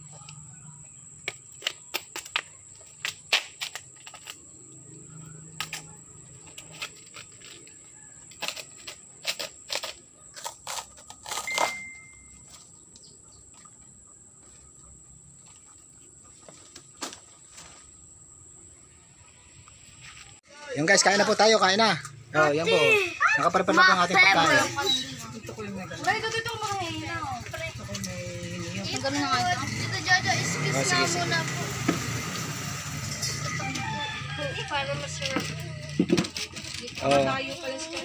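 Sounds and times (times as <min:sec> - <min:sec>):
banana sheaths cracking and snapping: 0:01.6 - 0:04.5, 0:08.3 - 0:11.7.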